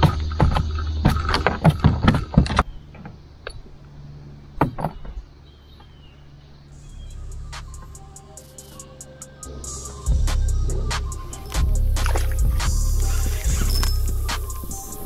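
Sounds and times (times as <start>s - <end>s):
knocks and rattles in a boat: 0.0s - 3.2s
faint music: 0.0s - 15.0s.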